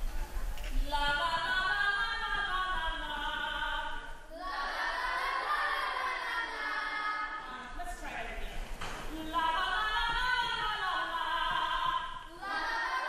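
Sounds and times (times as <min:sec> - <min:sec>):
female choir singing: 0:00.9 - 0:07.8, 0:09.2 - 0:13.0.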